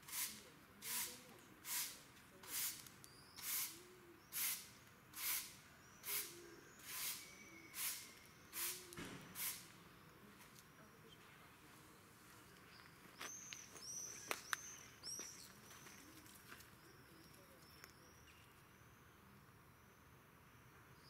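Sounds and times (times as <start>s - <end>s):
faint bird chirps: 5.6s - 9.0s, 10.0s - 21.0s
footsteps crunching on sandy path: 12.5s - 17.9s.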